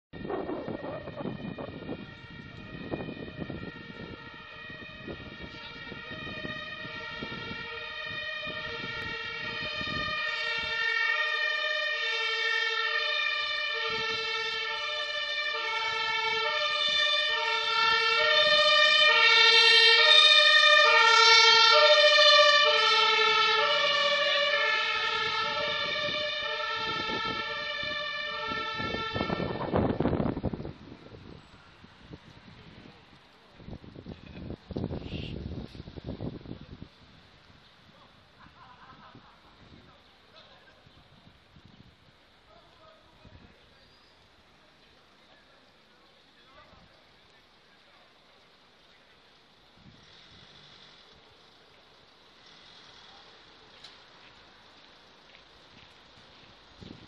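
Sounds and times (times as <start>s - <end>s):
street noise: 0.1s - 57.0s
two-tone siren: 0.2s - 30.7s.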